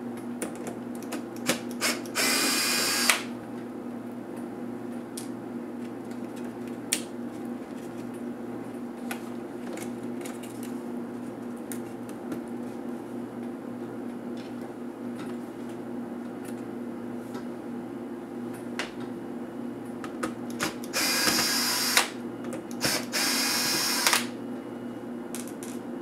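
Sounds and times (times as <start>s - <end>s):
electric screwdriver running: 1.8s - 3.3s, 20.6s - 22.1s, 22.8s - 24.3s.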